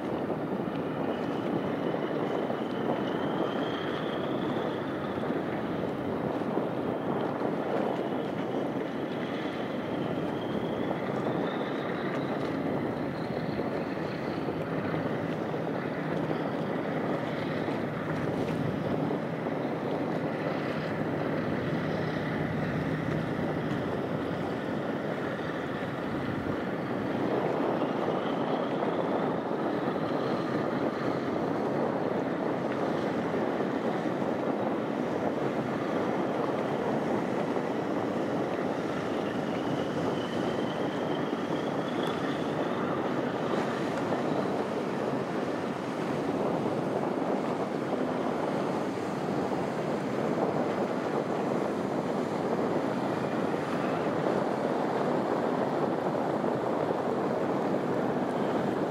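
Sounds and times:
wind rushing over water: 0.0 - 58.9
faint high rising whistles: 2.6 - 5.2, 9.3 - 14.5, 39.2 - 43.1.

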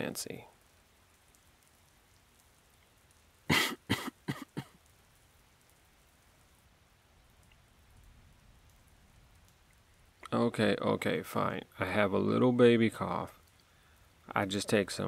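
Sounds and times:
faint steady rain: 0.0 - 15.0
man coughing: 3.5 - 4.8.

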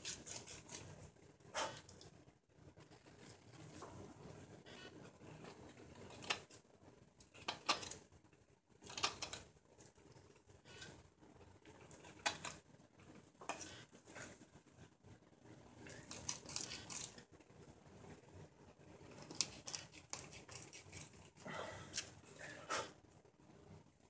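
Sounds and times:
hook knife scraping wood: 0.0 - 0.9.

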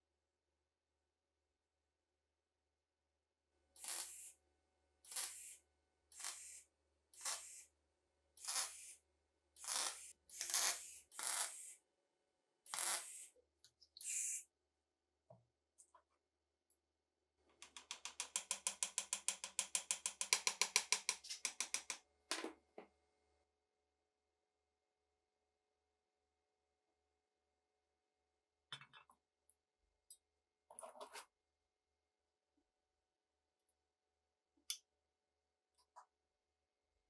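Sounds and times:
electric welding crackling hiss: 3.8 - 4.4, 5.1 - 5.6, 6.2 - 6.6, 7.2 - 7.7, 8.4 - 9.0, 9.6 - 11.8.

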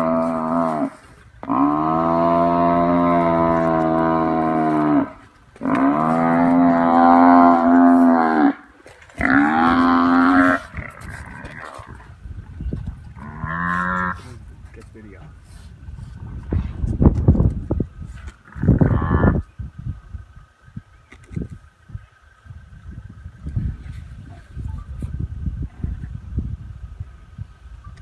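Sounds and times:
buffalo bellowing: 0.0 - 12.1, 13.1 - 14.4.

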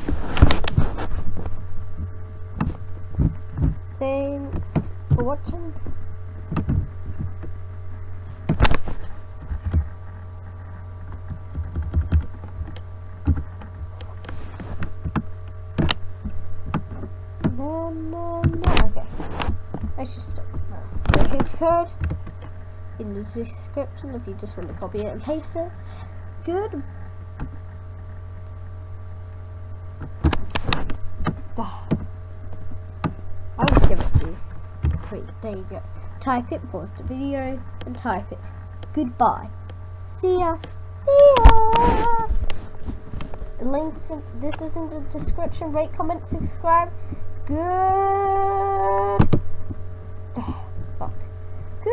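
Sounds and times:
steady electrical hum: 0.0 - 51.9.

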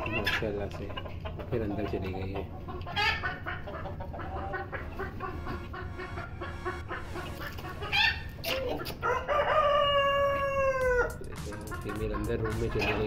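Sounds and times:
chickens clucking: 0.0 - 13.0
rooster crowing: 9.0 - 11.2.

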